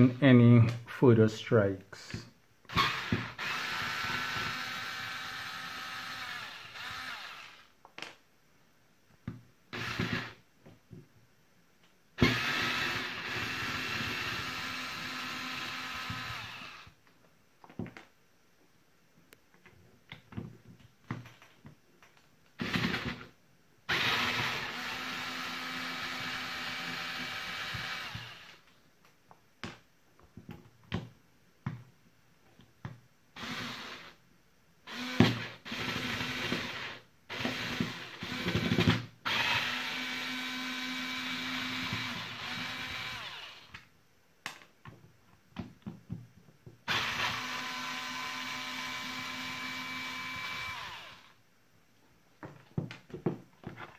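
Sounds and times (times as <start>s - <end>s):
electric screwdriver motor whine: 2.7s - 7.7s, 23.9s - 28.6s, 34.9s - 36.6s, 39.3s - 43.8s, 46.9s - 51.3s.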